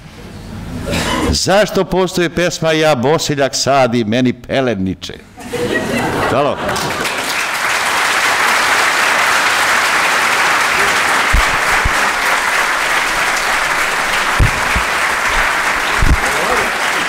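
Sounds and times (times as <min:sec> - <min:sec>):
audience applauding: 0:06.7 - 0:17.0
dull low thumps: 0:11.3 - 0:16.3.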